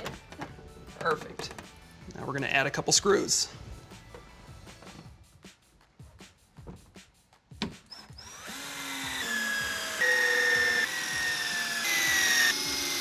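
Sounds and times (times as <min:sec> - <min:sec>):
cordless drill motor whine: 0:08.1 - 0:13.0.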